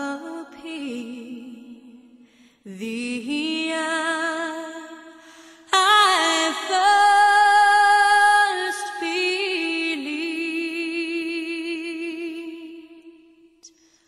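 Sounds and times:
high voice singing with vibrato: 5.6s - 13.1s.

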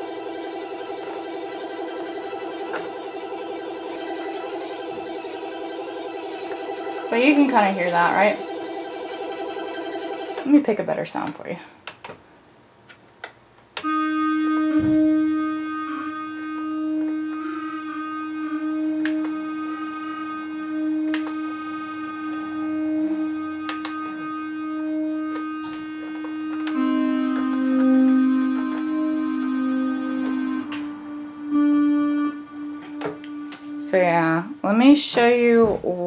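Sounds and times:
low held synthesizer note: 0.0s - 10.5s, 13.8s - 34.6s
short high synth notes: 0.0s - 10.6s
held synthesizer note: 0.0s - 10.8s, 13.8s - 34.6s.

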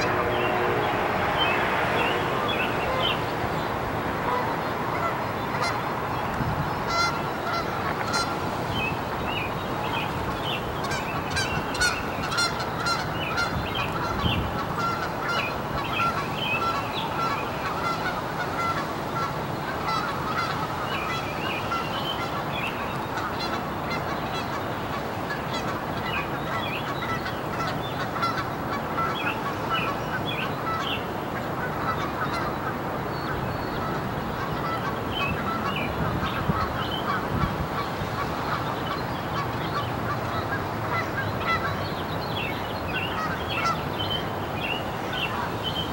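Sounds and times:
birds chirping: 0.0s - 45.9s
fountain water splashing: 14.8s - 35.9s.

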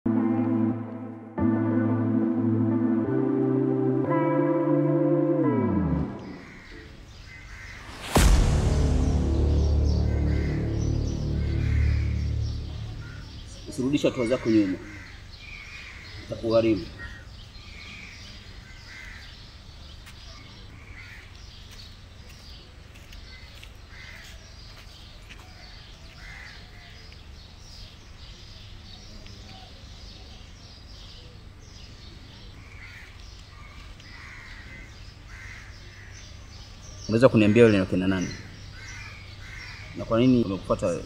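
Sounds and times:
birds calling: 6.0s - 8.4s, 9.0s - 41.0s
low outdoor rumble: 7.6s - 15.0s.

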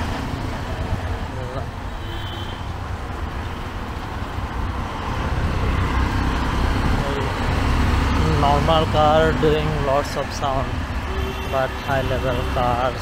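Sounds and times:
street traffic: 0.0s - 13.0s
vehicle approaching: 2.6s - 13.0s.

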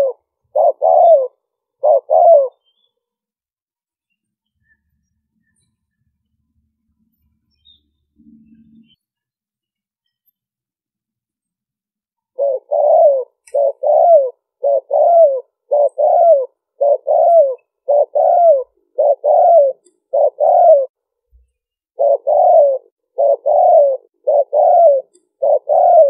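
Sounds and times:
dove cooing: 0.0s - 2.6s, 12.4s - 21.0s, 22.0s - 26.0s.

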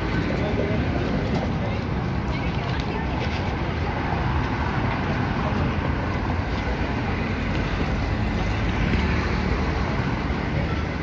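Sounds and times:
cars driving past: 2.9s - 11.0s.

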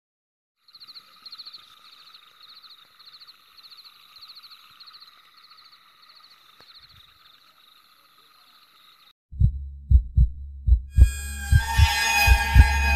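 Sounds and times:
insects chirping: 0.6s - 9.1s
steady high insect trill: 0.6s - 9.1s.

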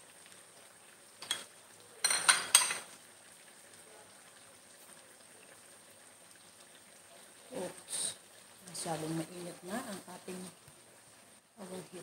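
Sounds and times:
metal cookware clinking: 1.2s - 2.9s.

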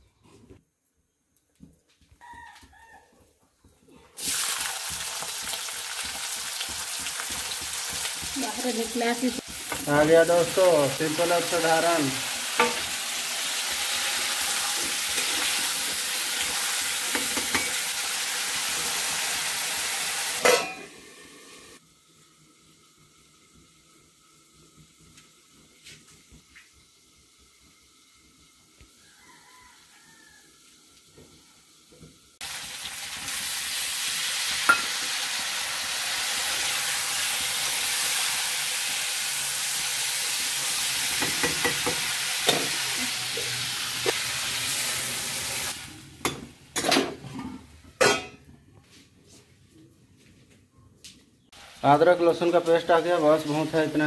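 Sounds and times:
food sizzling in hot oil: 4.2s - 47.4s, 51.5s - 54.0s
stirring in a pan: 4.8s - 13.2s.

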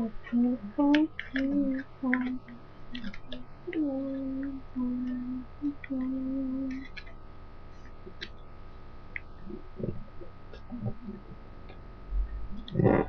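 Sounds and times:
person humming low notes: 0.0s - 6.9s, 9.4s - 11.4s, 12.1s - 13.0s.

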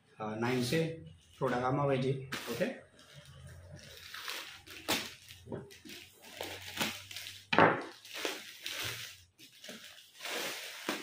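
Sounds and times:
plastic bag crackling and tearing: 2.4s - 11.0s.

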